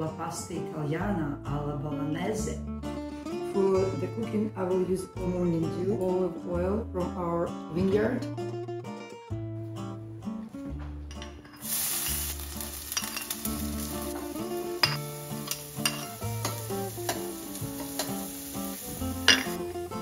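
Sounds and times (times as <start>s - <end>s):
acoustic guitar music: 0.0s - 20.0s
vegetables sizzling in oil: 11.6s - 20.0s
spoon clinking on pan: 12.9s - 13.5s, 14.8s - 17.3s, 19.3s - 19.6s.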